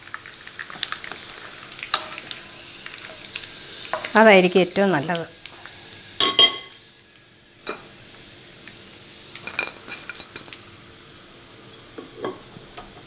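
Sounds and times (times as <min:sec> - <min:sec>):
utensils clinking on frying pan: 0:06.2 - 0:06.8, 0:09.4 - 0:10.4.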